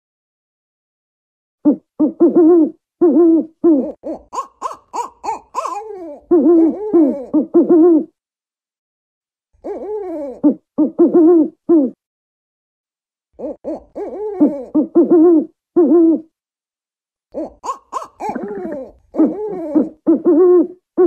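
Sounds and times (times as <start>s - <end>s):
owl hooting: 1.7s - 8.1s, 17.4s - 20.8s.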